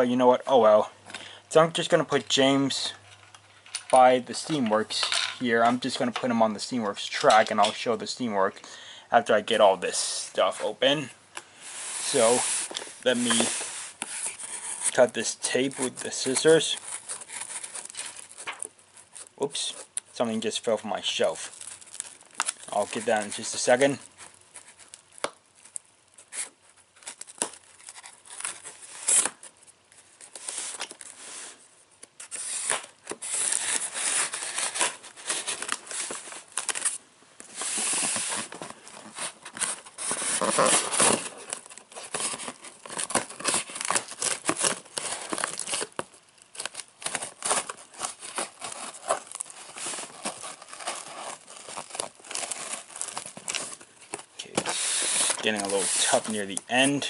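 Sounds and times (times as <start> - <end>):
scissors cutting packing tape: 54.7 - 56.3.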